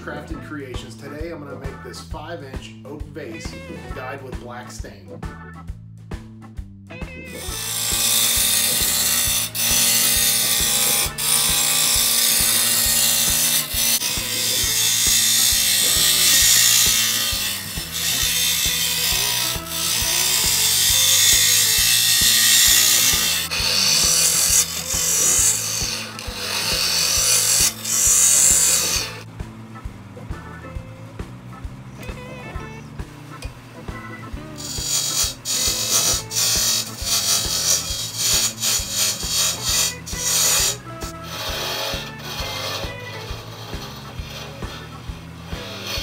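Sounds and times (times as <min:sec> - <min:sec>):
background music with bass line: 0:00.0 - 0:46.0
wood lathe hissing scrape: 0:07.3 - 0:29.3, 0:33.9 - 0:46.0.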